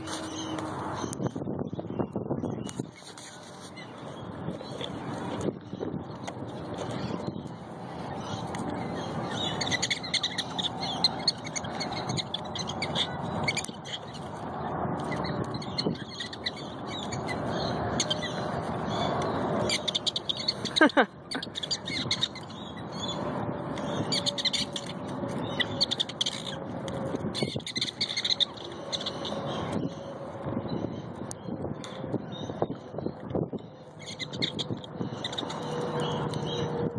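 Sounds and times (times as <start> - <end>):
prairie dogs chirping: 0.0 - 36.9.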